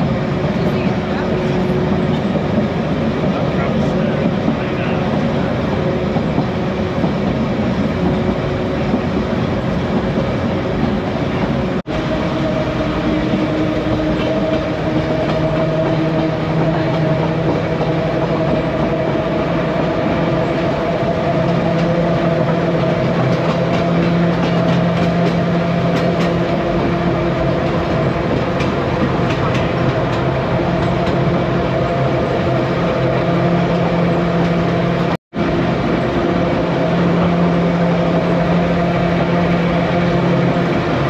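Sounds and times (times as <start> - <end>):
electric tram rumbling: 0.0 - 41.0.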